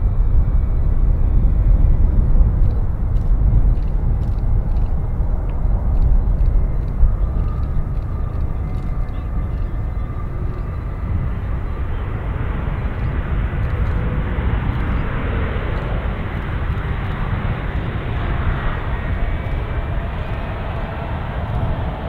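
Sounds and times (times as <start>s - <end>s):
jet engines running: 0.0s - 22.0s.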